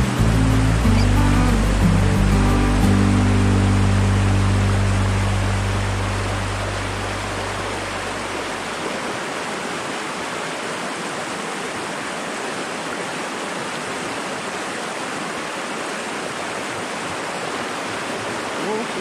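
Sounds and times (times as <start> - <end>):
low hum: 0.0 - 8.9
stream rushing over stones: 0.0 - 19.0.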